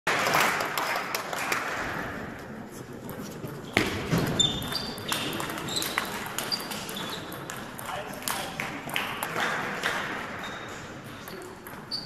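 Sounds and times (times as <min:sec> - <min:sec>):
shoe squeaks on floor: 0:03.7 - 0:07.4, 0:10.4 - 0:11.0.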